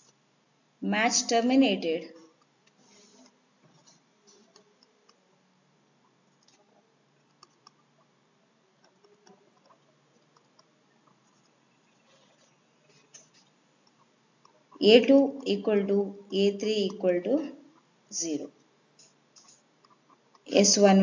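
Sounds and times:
stylus clicking on pen tablet: 7.3 - 7.8, 16.4 - 17.1.

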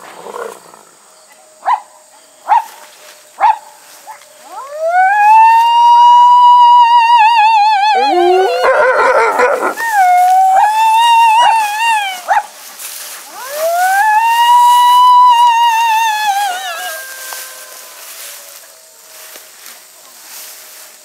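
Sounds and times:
wolf howling: 4.4 - 19.1
chorus of wolves: 4.4 - 20.4
wolf yelps: 4.5 - 12.5, 13.3 - 18.0.

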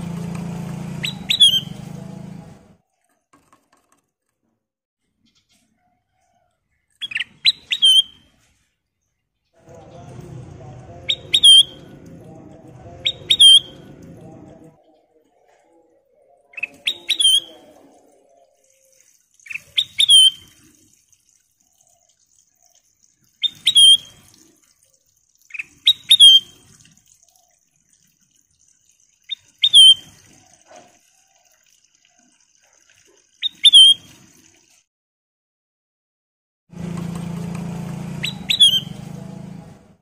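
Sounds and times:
bird singing whistled notes: 1.0 - 1.8, 7.0 - 8.2, 11.0 - 11.9, 13.0 - 13.9, 16.4 - 17.7, 19.5 - 20.5, 23.4 - 24.1, 25.5 - 26.6, 29.3 - 30.1, 33.4 - 34.1, 38.2 - 39.0.

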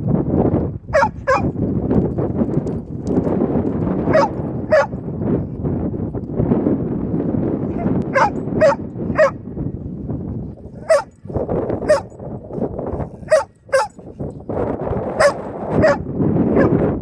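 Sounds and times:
dog barking: 1.0 - 1.5, 4.1 - 5.0, 7.7 - 9.4, 10.8 - 11.1, 11.8 - 12.1, 13.2 - 14.0, 15.2 - 16.8.

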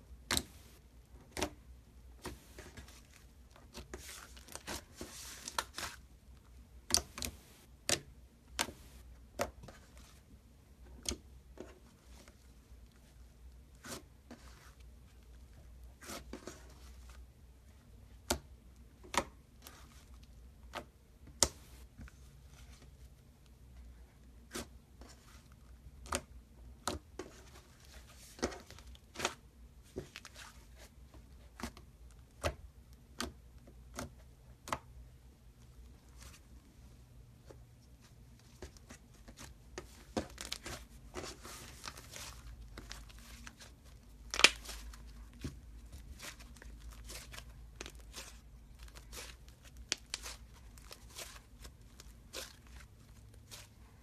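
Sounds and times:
slime crackling softly: 37.4 - 54.0.

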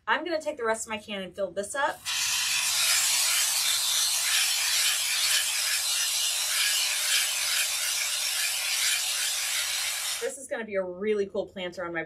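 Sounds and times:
spray foam can hissing: 2.0 - 10.2.

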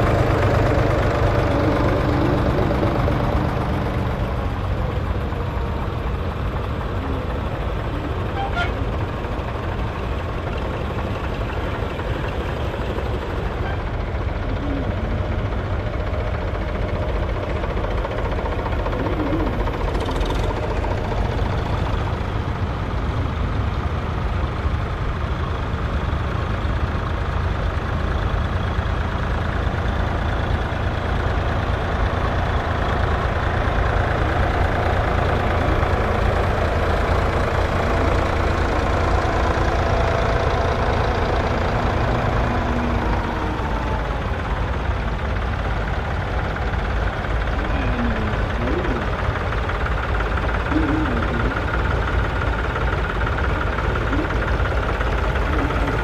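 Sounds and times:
tractor engines chugging: 0.0 - 56.0.

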